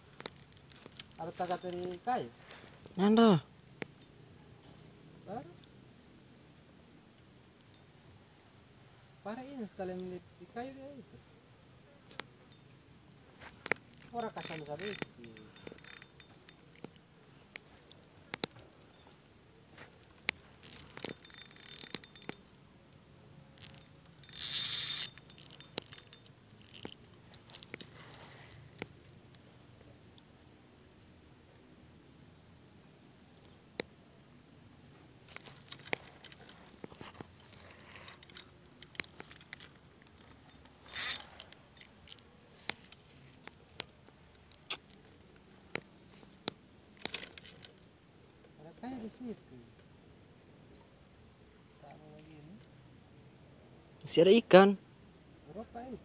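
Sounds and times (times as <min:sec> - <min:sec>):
fishing reel clicks and rattles: 0:00.1 - 0:02.2, 0:13.6 - 0:17.0, 0:20.0 - 0:22.6, 0:23.6 - 0:28.0, 0:37.4 - 0:43.0.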